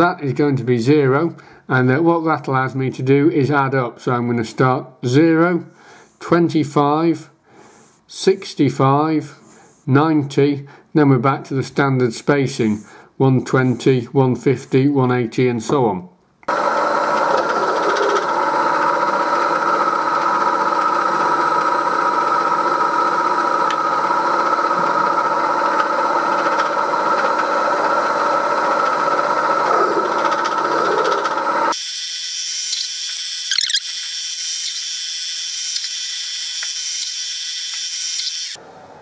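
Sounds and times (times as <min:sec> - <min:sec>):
milling machine whine: 0:16.5 - 0:38.6
high hiss and squeal: 0:29.7 - 0:38.6.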